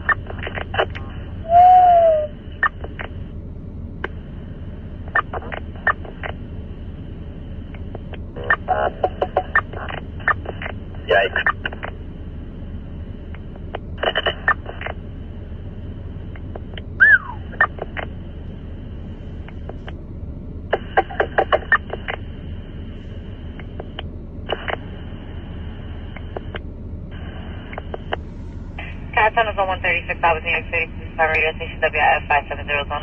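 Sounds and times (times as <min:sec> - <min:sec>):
radio clicks and crackle: 0:00.0 - 0:01.3, 0:02.6 - 0:03.3, 0:04.0 - 0:04.2, 0:05.0 - 0:06.5, 0:07.6 - 0:12.1, 0:13.2 - 0:15.1, 0:16.3 - 0:18.3, 0:19.4 - 0:20.0, 0:20.7 - 0:22.4, 0:23.5 - 0:28.2
radio static hiss: 0:00.0 - 0:01.4, 0:04.0 - 0:15.7, 0:16.4 - 0:20.0, 0:20.7 - 0:33.0.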